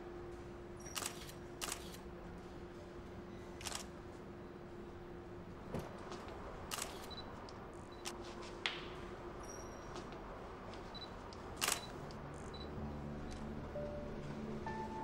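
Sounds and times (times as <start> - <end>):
camera shutter clicking: 1.0 - 2.0, 3.6 - 3.9, 6.7 - 7.1, 11.6 - 11.9.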